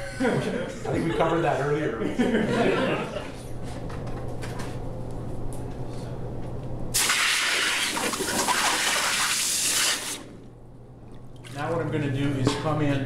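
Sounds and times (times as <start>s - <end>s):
hot metal sizzling in water: 7.0s - 10.2s.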